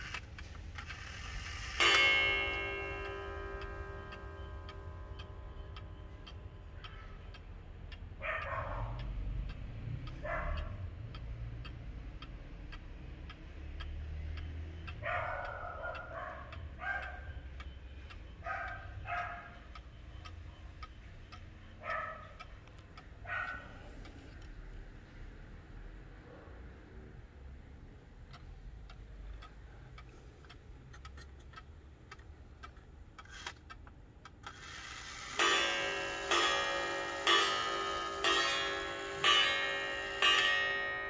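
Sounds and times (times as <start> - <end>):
clock striking: 0.0 - 11.8, 34.2 - 41.0
clock ticking: 0.0 - 41.0
dog barking: 8.2 - 9.1, 10.2 - 10.8, 15.0 - 17.4, 18.4 - 19.6, 21.8 - 22.4, 23.2 - 23.9.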